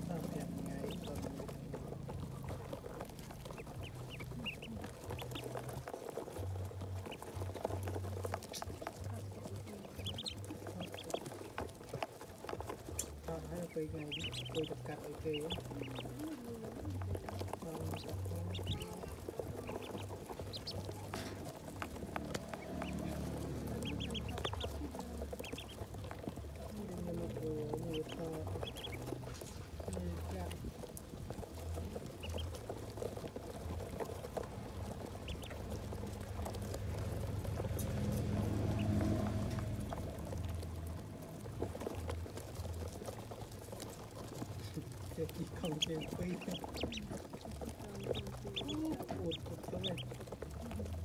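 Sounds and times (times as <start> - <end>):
ducklings peeping: 0.0 - 51.0
low hum: 13.0 - 51.0.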